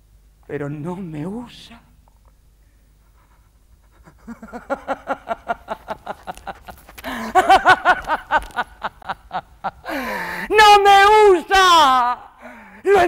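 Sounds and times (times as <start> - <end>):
woman laughing in staccato bursts: 3.8 - 10.3.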